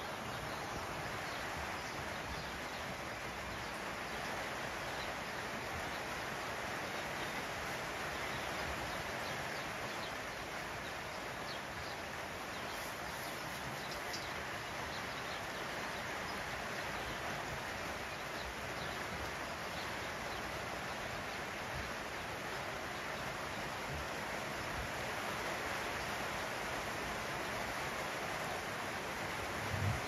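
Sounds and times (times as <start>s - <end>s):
heavy rain on a roof: 15.4s - 30.0s.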